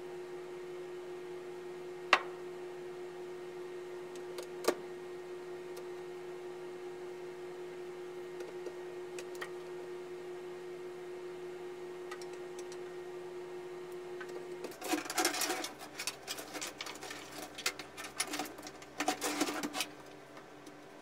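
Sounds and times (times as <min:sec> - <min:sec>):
steady hum: 0:00.0 - 0:21.0.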